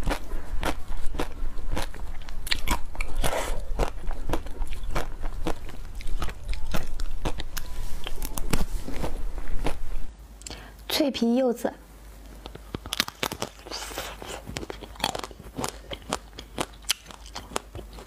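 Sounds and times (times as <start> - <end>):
biting and chewing ice cream bar: 0.0 - 9.9, 12.4 - 18.0
chocolate shell crackling: 12.4 - 18.0.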